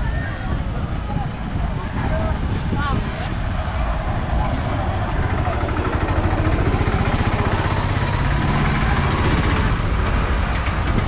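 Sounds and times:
rickshaw engine running: 3.3 - 11.0.

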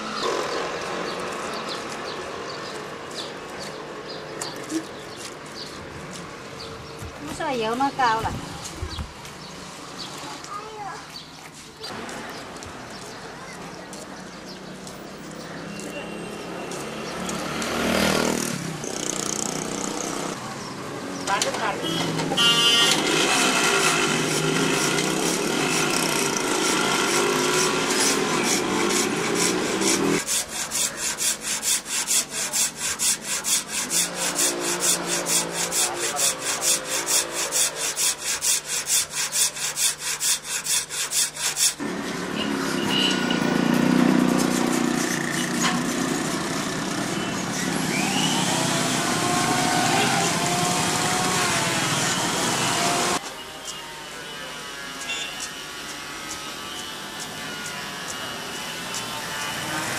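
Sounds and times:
street noise: 0.0 - 59.9
hand-sawing wood: 21.4 - 53.2, 54.9 - 59.9.

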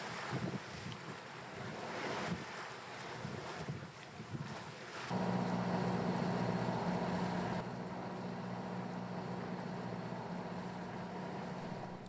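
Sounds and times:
sea noise: 0.0 - 12.0
wind: 0.0 - 12.0
boat engine humming: 5.1 - 12.0.

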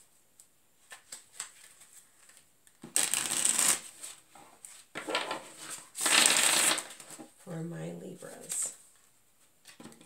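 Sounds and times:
cards shuffling: 0.8 - 7.2.

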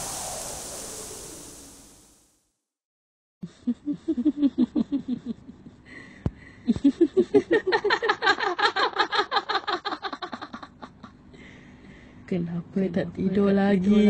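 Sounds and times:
eerie ghost laughter: 3.4 - 11.6.

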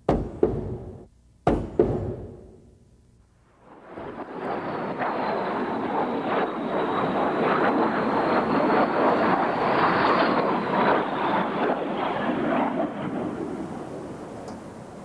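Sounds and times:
high steady whine: 0.7 - 12.2.

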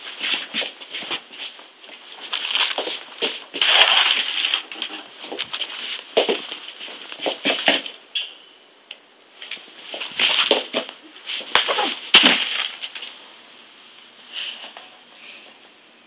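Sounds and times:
paper rustling and crunching: 2.2 - 6.4.

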